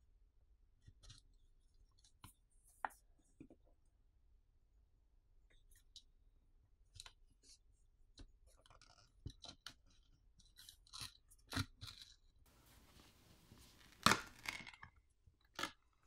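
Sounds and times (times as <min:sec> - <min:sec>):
pry tool clicking and scraping plastic: 0:08.6 - 0:12.2.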